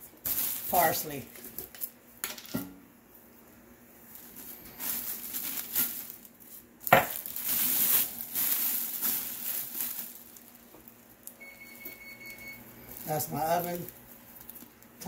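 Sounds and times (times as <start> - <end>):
plastic bag crinkling: 0.2 - 2.0, 4.2 - 15.0
oven electronic beep: 11.4 - 12.9.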